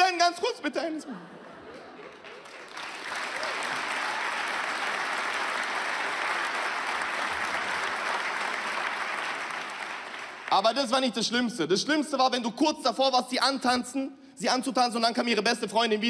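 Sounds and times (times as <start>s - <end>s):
large audience applauding: 1.6s - 11.0s.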